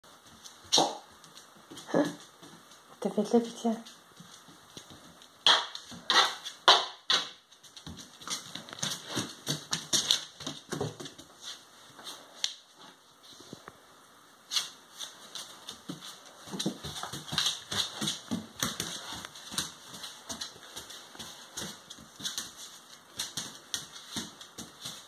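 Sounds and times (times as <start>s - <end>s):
dog claws clicking on tile: 16.5s - 25.0s.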